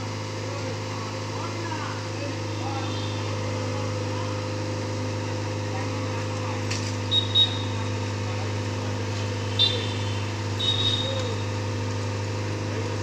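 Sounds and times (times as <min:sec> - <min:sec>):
excavator engine running: 0:00.0 - 0:13.0
short high-pitched tones: 0:07.1 - 0:07.9.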